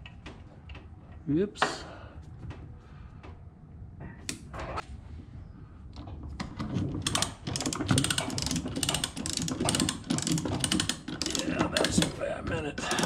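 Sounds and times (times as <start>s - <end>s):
ratchet pawl clicks: 7.0s - 12.1s.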